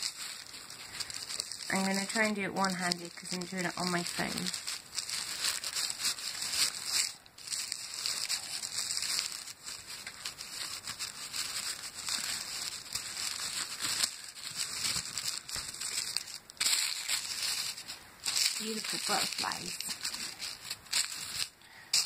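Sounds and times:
wrapping paper crinkling: 0:00.0 - 0:22.0.

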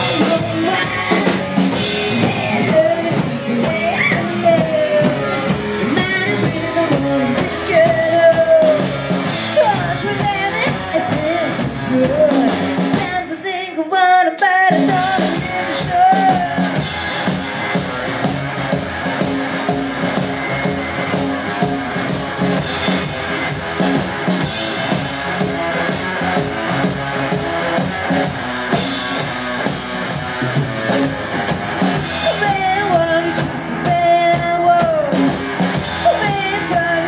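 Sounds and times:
upright bass: 0:00.0 - 0:13.6, 0:14.6 - 0:37.0
woman singing: 0:00.0 - 0:16.8, 0:32.2 - 0:35.4, 0:36.0 - 0:37.0
drum kit: 0:00.0 - 0:37.0.

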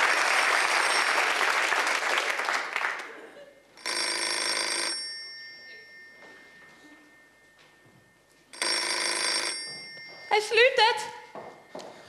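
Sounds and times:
telephone ringing: 0:00.4 - 0:01.5, 0:03.8 - 0:11.7.

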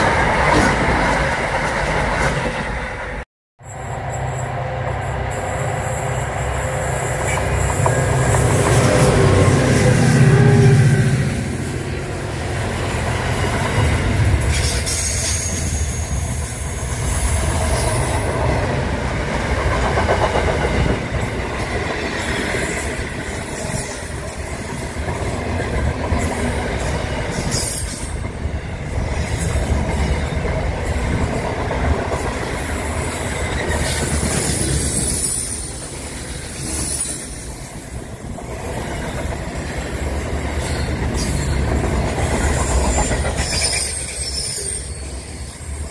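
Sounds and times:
train wheels rumbling on rails: 0:00.0 - 0:45.9
high-pitched wheel squeal: 0:42.5 - 0:45.9.

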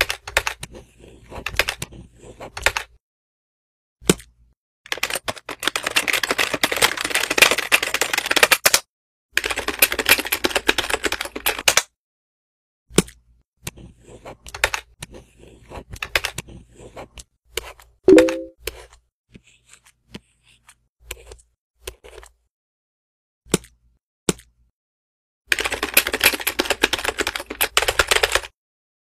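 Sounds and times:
rapid keyboard typing: 0:00.0 - 0:03.0, 0:04.9 - 0:11.9, 0:14.2 - 0:17.2, 0:18.1 - 0:18.5, 0:25.5 - 0:28.6.

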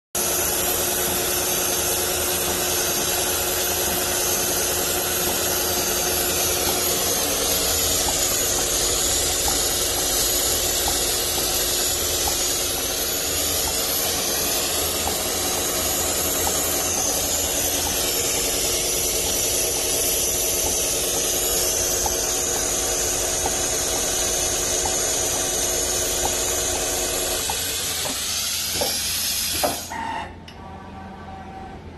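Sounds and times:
frame motor whining: 0:00.2 - 0:30.1
sewing machine whirring: 0:00.2 - 0:30.3.

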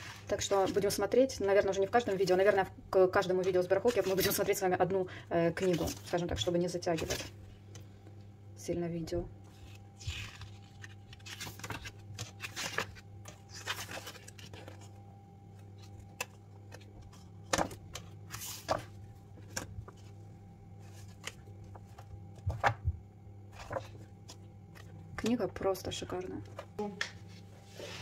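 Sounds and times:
steady low hum: 0:00.0 - 0:28.0
book pages turning: 0:03.4 - 0:04.5, 0:05.6 - 0:07.8, 0:09.5 - 0:25.0.

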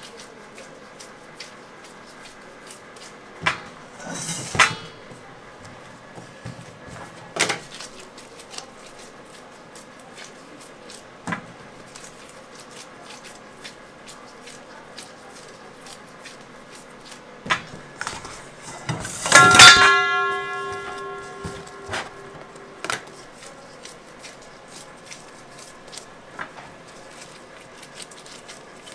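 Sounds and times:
steady ringing tone: 0:19.3 - 0:22.8.

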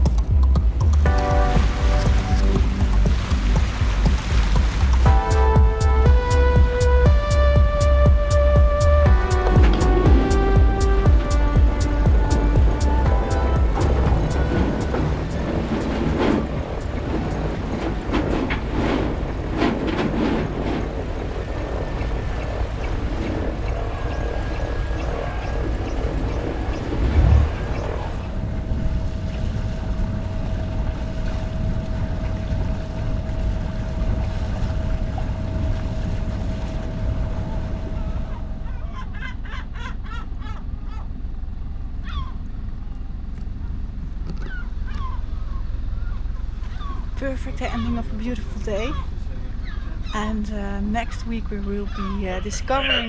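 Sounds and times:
water noise: 0:00.0 - 0:41.2
steady hum: 0:00.0 - 0:53.0
wind: 0:00.0 - 0:53.0
gulls calling: 0:00.9 - 0:19.8, 0:20.4 - 0:28.5, 0:37.4 - 0:41.2, 0:42.0 - 0:42.4, 0:43.6 - 0:53.0.

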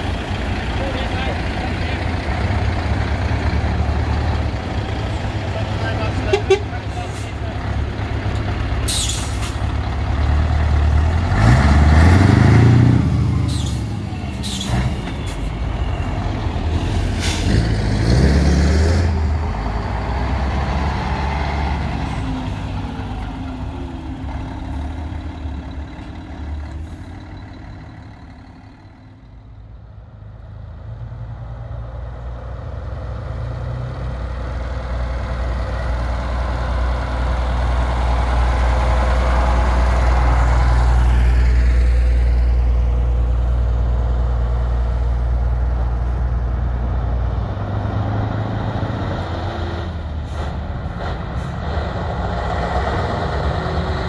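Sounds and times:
another lorry engine: 0:00.0 - 0:54.0
diesel lorry engine revving: 0:00.0 - 0:54.0
air brakes hissing: 0:08.9 - 0:09.7, 0:13.5 - 0:15.5, 0:16.7 - 0:17.6.

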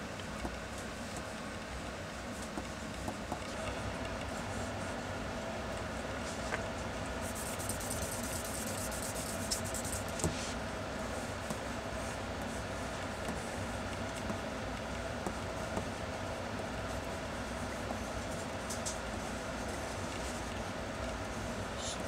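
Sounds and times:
low room hum: 0:00.0 - 0:22.0
pencil scratching on paper: 0:07.2 - 0:10.2.

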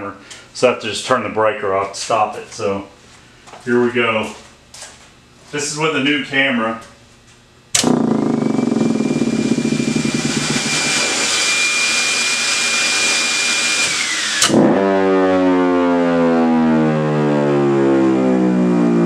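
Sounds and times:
blower air rush: 0:07.8 - 0:15.2
siren winding up: 0:07.8 - 0:19.0.

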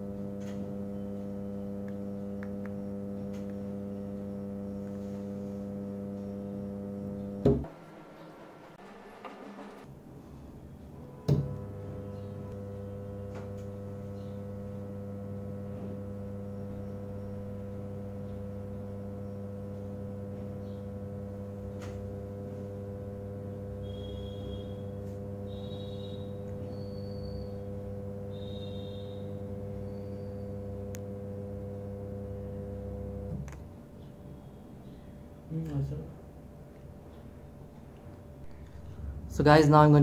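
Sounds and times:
transformer humming: 0:38.4 - 0:40.0.

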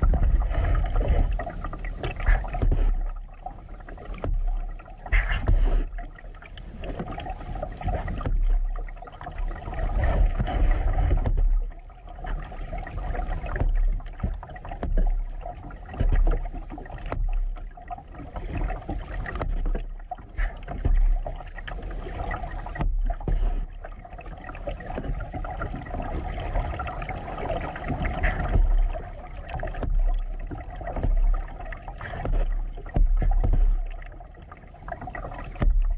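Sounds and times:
kayak paddle splashing: 0:00.0 - 0:35.9
low rumble: 0:00.0 - 0:35.9
water dripping from paddle: 0:00.0 - 0:35.9.

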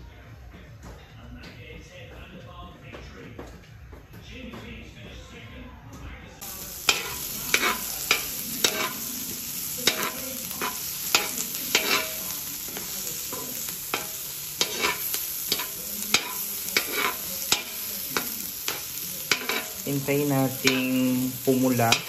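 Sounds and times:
garlic and onion sizzling in oil: 0:06.4 - 0:22.0
metal spatula scraping a pan: 0:06.5 - 0:22.0.

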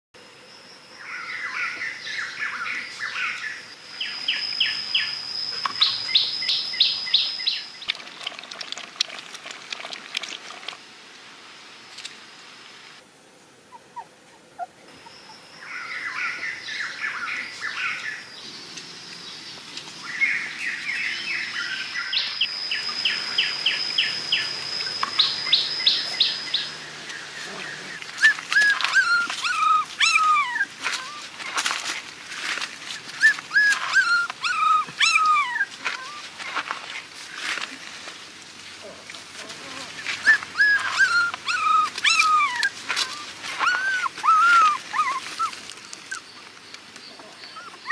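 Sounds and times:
steady high-pitched tone: 0:20.0 - 0:30.4
puppies whimpering: 0:22.4 - 0:31.7, 0:33.1 - 0:36.3, 0:39.6 - 0:46.3, 0:47.2 - 0:47.9.

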